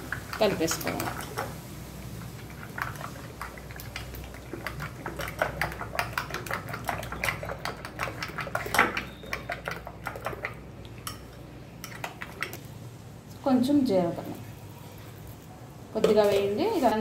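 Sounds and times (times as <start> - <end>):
wet stirring: 0.0 - 12.8
spoon clinking against glass bowl: 11.0 - 12.0.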